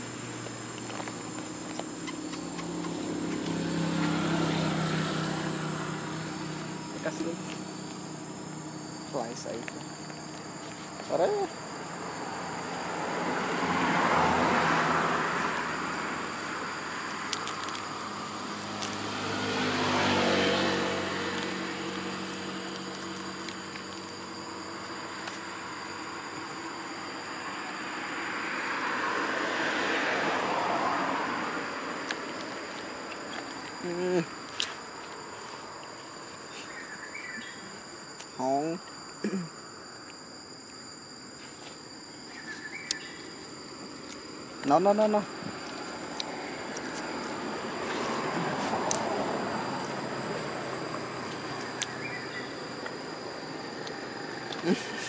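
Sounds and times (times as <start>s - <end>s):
motor vehicle passing by: 0.0s - 8.9s, 12.0s - 23.6s, 27.4s - 34.1s, 43.8s - 55.0s
insects droning: 0.0s - 55.0s.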